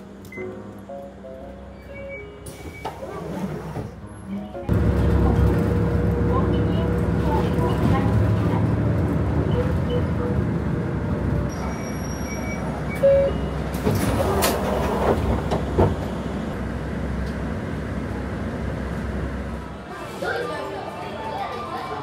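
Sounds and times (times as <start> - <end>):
bus engine and road rumble: 0.0 - 22.0
bus door clacks and hisses: 1.8 - 4.2, 11.5 - 16.6
short electronic beep: 11.5 - 13.6.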